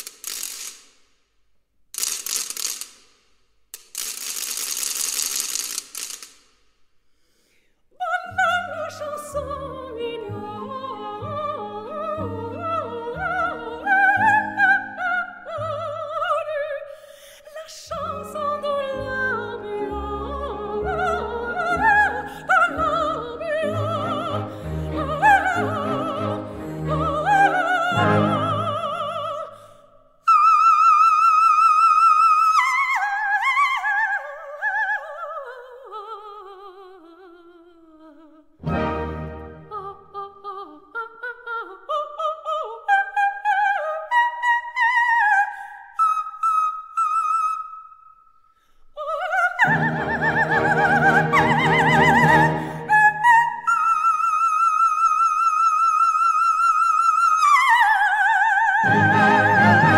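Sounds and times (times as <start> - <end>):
soprano singing: 8.0 - 47.6, 49.0 - 59.9
symphony orchestra: 17.9 - 29.4, 38.6 - 39.9, 49.6 - 53.4, 58.8 - 59.9.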